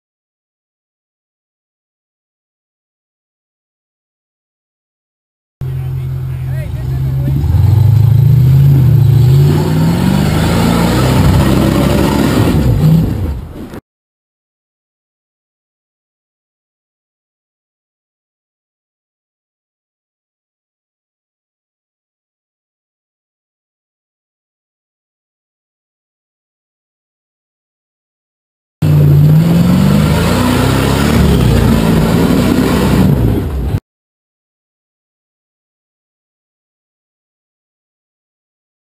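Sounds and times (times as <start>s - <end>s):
engine revving under load: 5.6s - 13.8s, 28.8s - 33.8s.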